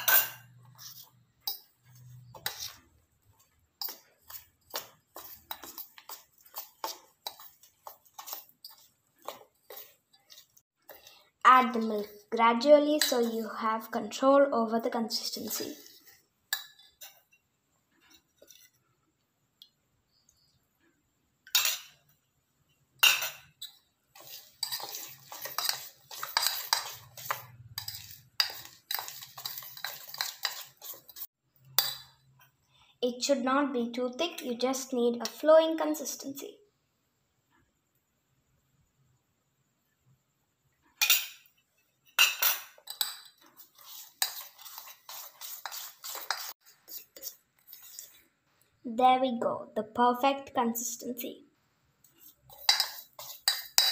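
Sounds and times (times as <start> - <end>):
fork scraping and whisking in bowl: 0.0 - 13.9, 15.1 - 18.9, 23.0 - 32.2, 41.0 - 48.4, 52.0 - 53.9
metal fork clinking on bowl: 52.5 - 53.9.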